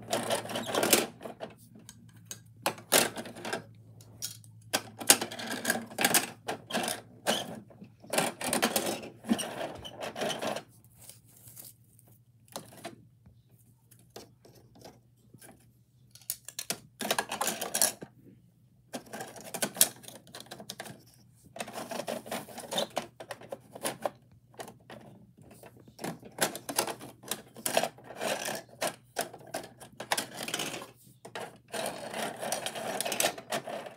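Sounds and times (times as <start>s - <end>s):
plastic pieces clattering: 16.2s - 18.0s, 26.0s - 33.9s.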